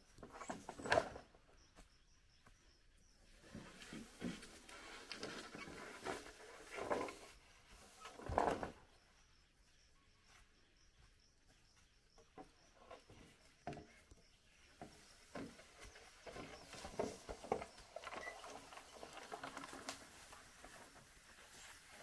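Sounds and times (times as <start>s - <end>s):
bamboo poles knocking and scraping: 0.1s - 1.4s, 3.4s - 8.9s, 12.2s - 22.0s
faint high chirping: 7.2s - 22.0s.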